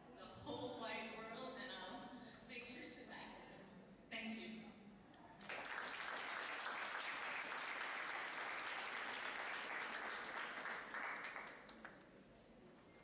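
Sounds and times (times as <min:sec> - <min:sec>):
audience applauding: 0:05.4 - 0:12.1.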